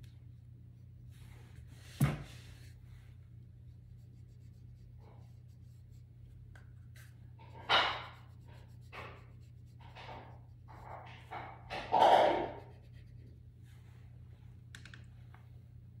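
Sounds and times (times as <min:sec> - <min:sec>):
steady low hum: 0:00.0 - 0:16.0
colored pencil scratching on paper: 0:03.9 - 0:06.1, 0:07.0 - 0:11.1, 0:12.0 - 0:13.4.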